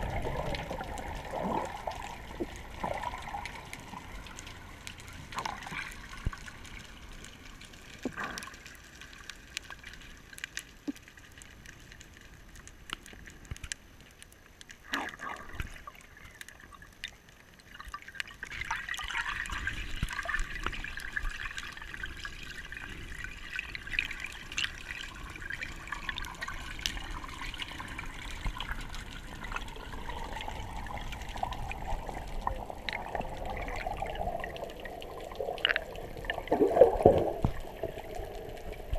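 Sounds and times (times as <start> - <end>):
bubbles: 0.0 - 7.0, 14.8 - 38.9
rush of water: 0.0 - 7.2
muffled underwater water: 0.0 - 38.9
clicks underwater: 31.5 - 38.9.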